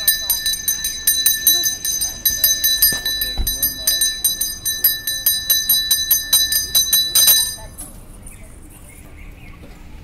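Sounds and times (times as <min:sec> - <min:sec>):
hand bell rung rapidly: 0:00.0 - 0:07.8.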